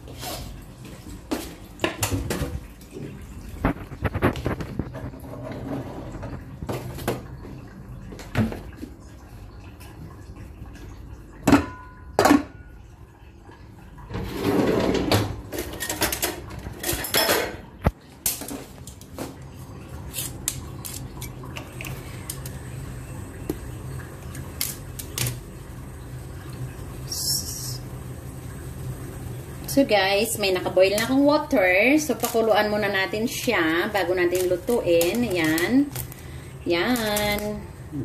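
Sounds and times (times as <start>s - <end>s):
gas burner humming: 17.4s - 38.0s.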